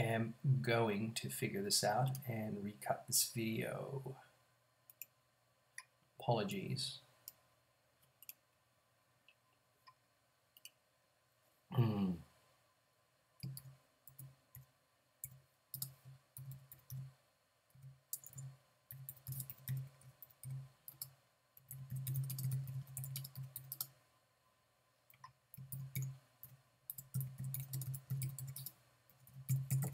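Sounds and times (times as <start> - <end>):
typing on computer keyboard: 13.4 - 17.1, 17.7 - 24.0, 25.1 - 29.9.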